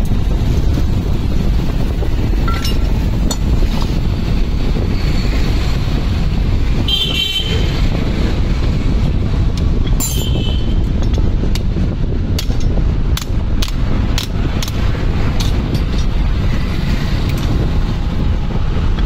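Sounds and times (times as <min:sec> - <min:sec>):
low rumble: 0:00.0 - 0:06.8
metallic clicks and knocks: 0:02.4 - 0:04.0, 0:09.5 - 0:16.4.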